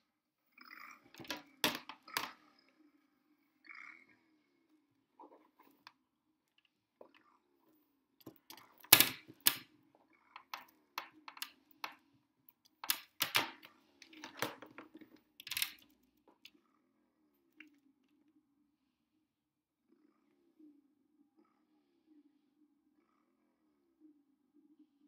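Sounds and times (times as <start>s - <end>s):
plastic container clicks and knocks: 1.1s - 2.3s.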